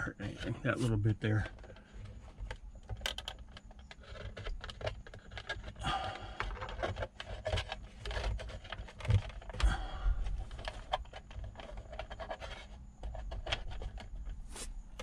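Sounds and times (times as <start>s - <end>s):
cable and plastic clicks and taps: 2.4s - 5.8s.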